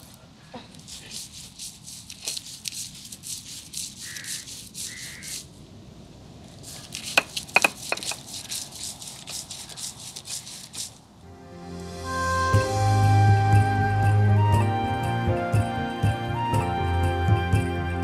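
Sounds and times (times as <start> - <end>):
grinding stone rubbing strokes: 0.0 - 5.5, 6.6 - 11.0
sharp knocks: 7.2 - 8.2.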